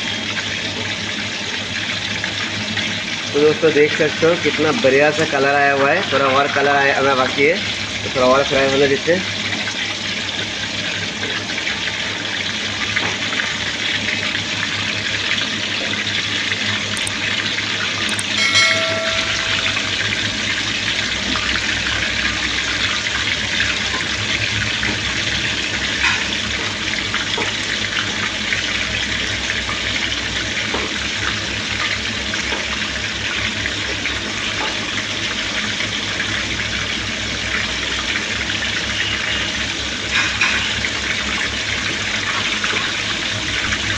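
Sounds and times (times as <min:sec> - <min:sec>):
food deep-frying in oil: 0:00.0 - 0:43.9
brief ringing tone: 0:18.1 - 0:20.7.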